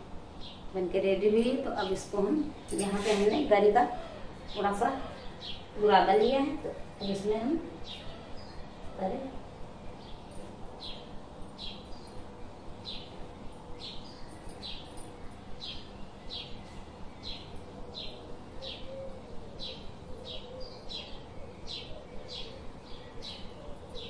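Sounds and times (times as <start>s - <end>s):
bird chirping: 1.4s - 24.0s.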